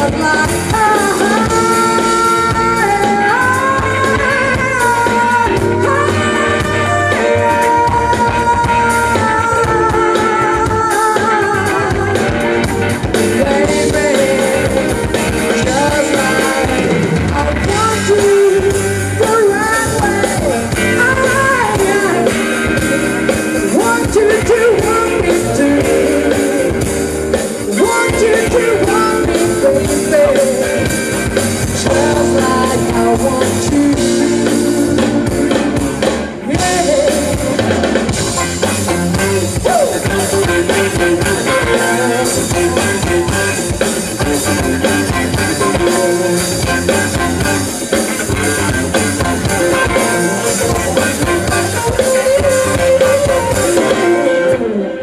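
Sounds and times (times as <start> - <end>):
woman singing: 0.0 - 12.6, 13.2 - 23.0, 23.6 - 31.0, 31.8 - 37.8
live band playing: 0.0 - 55.0.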